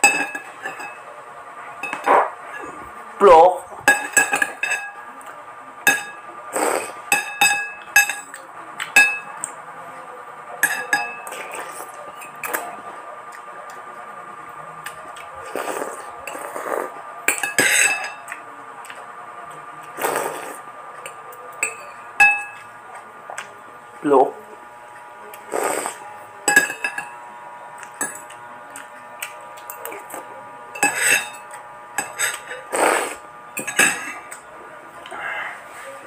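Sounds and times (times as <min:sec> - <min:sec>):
cutlery clinking against ceramic bowl: 0:00.0 - 0:01.0, 0:01.8 - 0:02.3, 0:03.8 - 0:05.0, 0:05.8 - 0:06.3, 0:07.1 - 0:09.6, 0:10.6 - 0:12.6, 0:17.3 - 0:19.0, 0:21.0 - 0:22.8, 0:26.4 - 0:27.2, 0:27.8 - 0:34.4
noodle slurps: 0:06.5 - 0:07.0, 0:15.4 - 0:17.0, 0:20.0 - 0:20.6, 0:25.5 - 0:26.0, 0:32.3 - 0:33.2.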